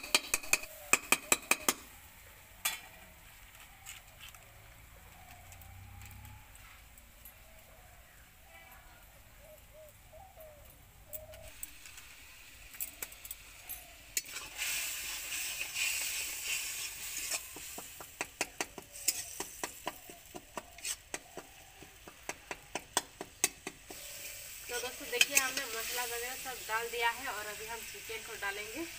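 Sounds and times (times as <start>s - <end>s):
onions sizzling in hot oil: 11.4s - 28.9s
metal spatula scraping a pan: 13.4s - 17.9s, 18.9s - 19.9s, 20.7s - 21.2s, 23.9s - 26.5s.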